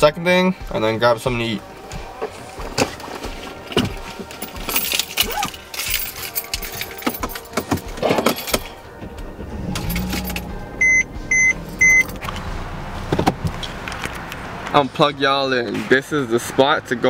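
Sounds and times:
car keys jangling: 4.2s - 12.5s
dashboard chime beeps: 10.8s - 12.2s.

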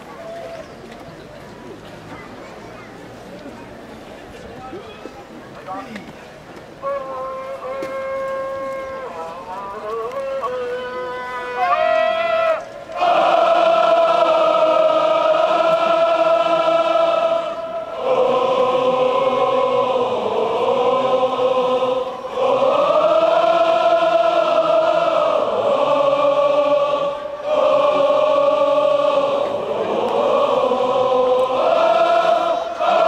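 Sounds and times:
football supporters chanting: 12.5s - 33.0s.

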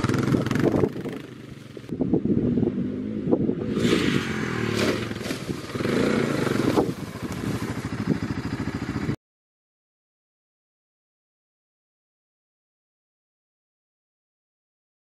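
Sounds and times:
quad bike engine running: 0.0s - 9.2s.

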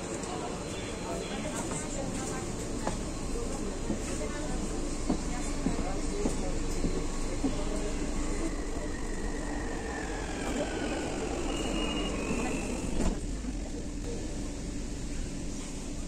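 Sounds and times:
train carriage rumble: 0.0s - 16.0s
high warning beeps: 8.6s - 13.1s.

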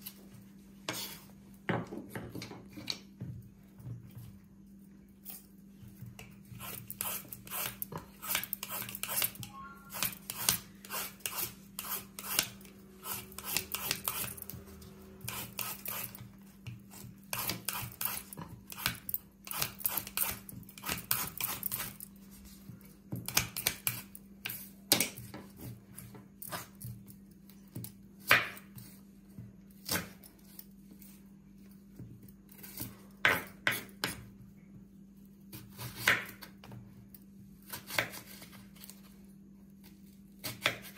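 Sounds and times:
peeler scraping banana skin: 6.5s - 22.1s.

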